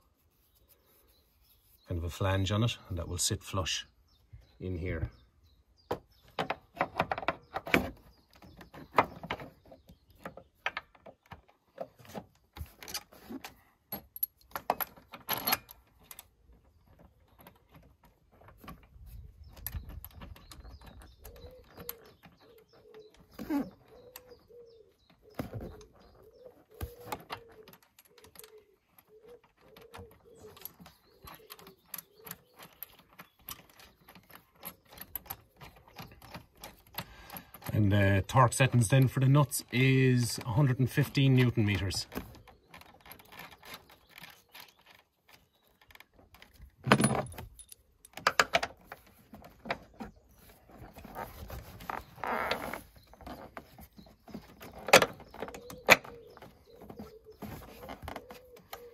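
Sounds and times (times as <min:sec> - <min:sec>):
pigeon cooing: 0:21.0 - 0:32.7, 0:55.2 - 0:58.9
metal parts clinking: 0:46.9 - 0:48.7.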